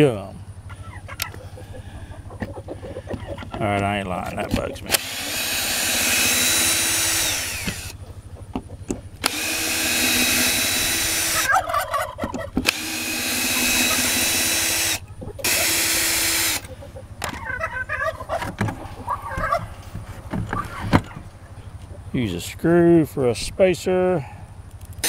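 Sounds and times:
cordless drill running: 4.9s - 8.0s, 9.2s - 11.5s, 12.6s - 16.7s.

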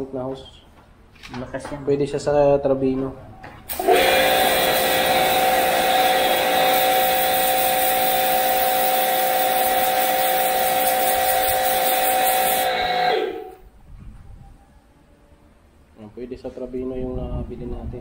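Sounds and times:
pressure washer motor whine: 3.7s - 13.6s
water jet hissing: 3.7s - 13.6s.

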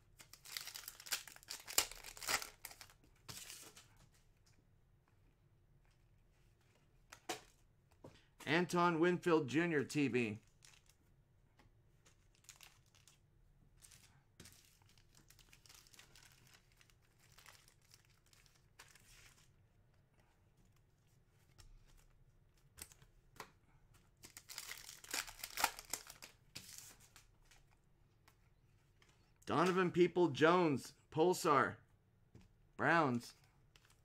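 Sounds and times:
plastic wrapper crinkling and tearing: 0.2s - 3.6s, 10.4s - 11.0s, 12.1s - 13.2s, 13.8s - 19.5s, 24.2s - 26.4s
cards rustling: 0.2s - 4.1s, 11.9s - 19.6s, 20.6s - 30.0s.

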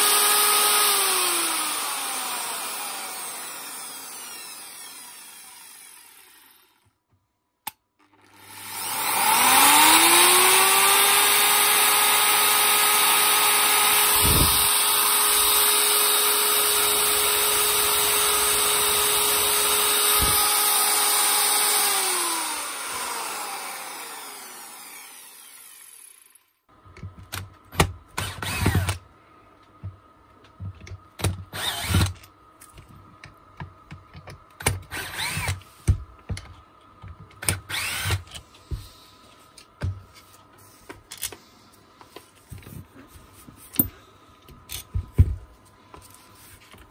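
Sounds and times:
angle grinder whining: 0.0s - 7.0s, 8.1s - 26.4s, 37.5s - 38.3s.

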